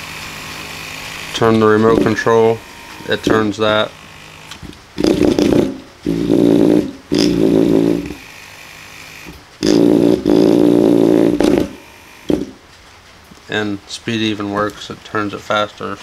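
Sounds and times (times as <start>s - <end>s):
electric motor humming: 0.0s - 12.6s.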